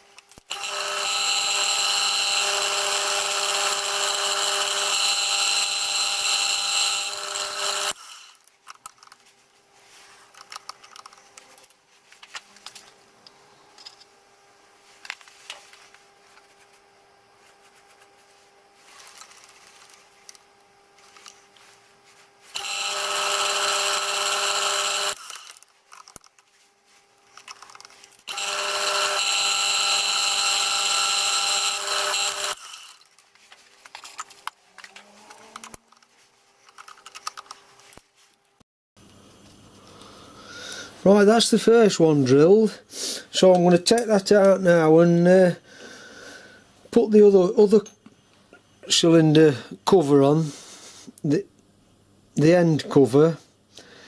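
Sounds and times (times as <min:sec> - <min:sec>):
milling machine drilling: 0:00.5 - 0:08.4, 0:22.6 - 0:25.6, 0:28.3 - 0:33.0.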